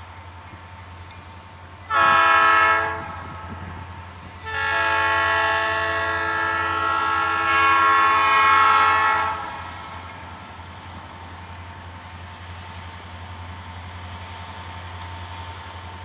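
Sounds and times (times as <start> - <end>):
locomotive air horn blast: 1.9 - 3.6, 4.4 - 10.0.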